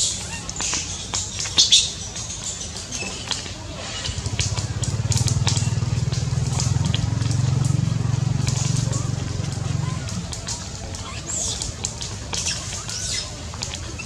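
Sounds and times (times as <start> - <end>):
motorbike engine running: 4.0 - 11.3.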